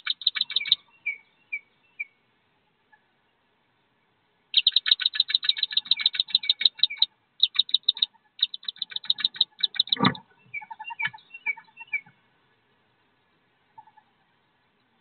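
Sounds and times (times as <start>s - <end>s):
ducklings peeping: 0.0s - 2.1s, 4.6s - 12.2s
soft low duckling calls: 4.5s - 12.2s, 13.6s - 14.4s.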